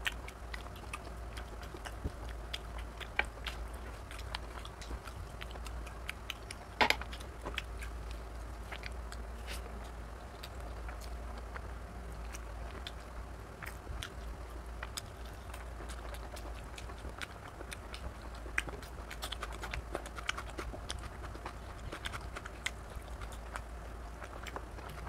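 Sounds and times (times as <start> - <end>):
chewing and mouth smacks: 0.0 - 25.0
low steady hum: 0.0 - 25.0.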